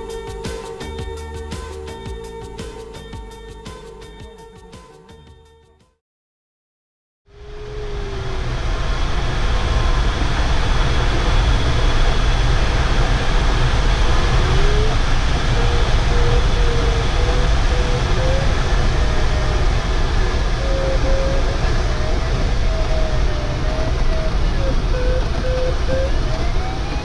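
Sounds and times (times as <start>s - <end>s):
rushing airflow with low rumble: 0.0s - 4.5s, 7.3s - 27.0s
electronic variometer beeps: 22.6s - 27.0s.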